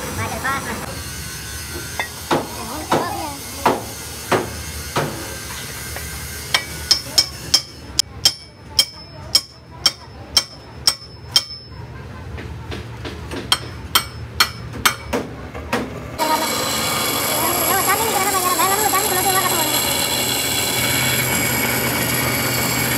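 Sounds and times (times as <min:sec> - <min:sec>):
hammer striking steel: 0:06.0 - 0:11.8, 0:13.4 - 0:15.3.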